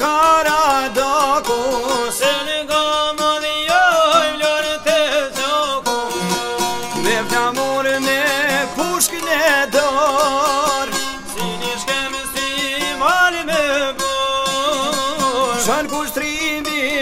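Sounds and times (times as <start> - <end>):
plucked lute folk melody: 0.0 - 17.0.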